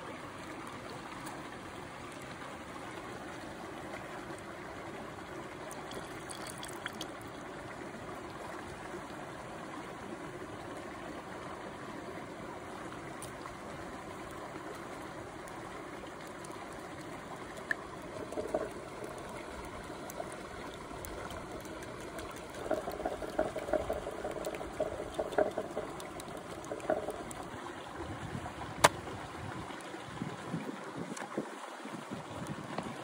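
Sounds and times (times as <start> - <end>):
stream running: 0.0 - 33.0
stirring in a terracotta bowl: 17.5 - 27.6.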